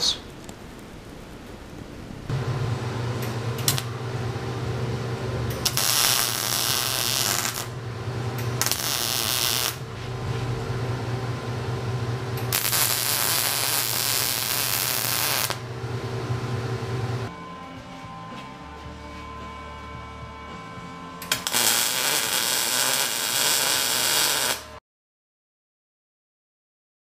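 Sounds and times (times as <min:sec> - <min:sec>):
welding arc crackling: 0:00.5 - 0:04.4, 0:05.5 - 0:09.9, 0:12.3 - 0:15.7, 0:21.2 - 0:24.8
steady hum: 0:02.1 - 0:17.3.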